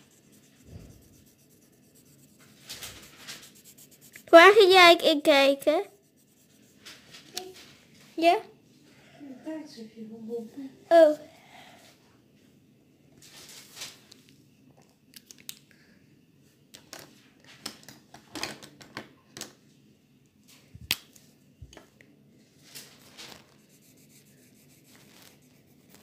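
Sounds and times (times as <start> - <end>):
marker on paper: 0.0 - 4.7, 5.8 - 6.9, 23.6 - 26.0.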